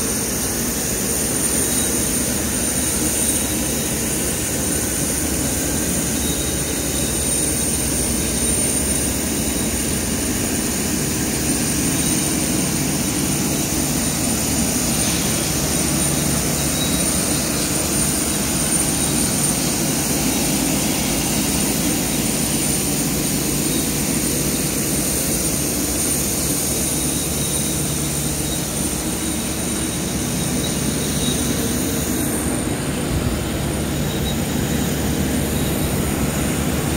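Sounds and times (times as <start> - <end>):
jet turbine whine: 0.0 - 36.9.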